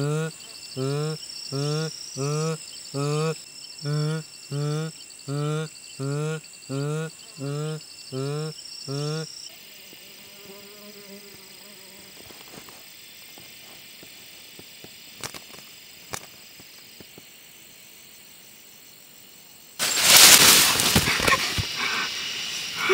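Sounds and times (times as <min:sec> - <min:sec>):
crickets and insects droning: 0:00.0 - 0:22.9
bird wings flapping and rustling: 0:15.2 - 0:16.4, 0:19.8 - 0:22.1.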